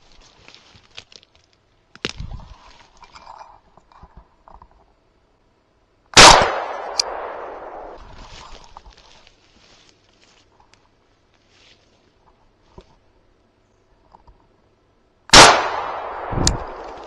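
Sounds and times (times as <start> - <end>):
footsteps through brush: 0.0 - 3.0, 7.5 - 13.0, 16.6 - 17.0
shotgun shot echoing: 6.2 - 8.0, 15.3 - 17.0.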